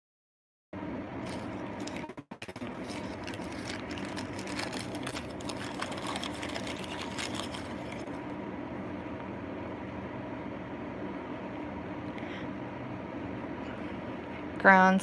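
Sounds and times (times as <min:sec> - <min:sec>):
steady background hum: 0:00.8 - 0:15.0
packing paper and bubble wrap crinkling: 0:01.2 - 0:08.1.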